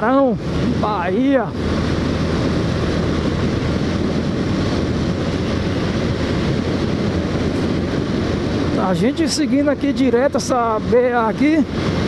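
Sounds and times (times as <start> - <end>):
motorcycle engine running: 0.0 - 8.8
wind noise: 0.0 - 12.0.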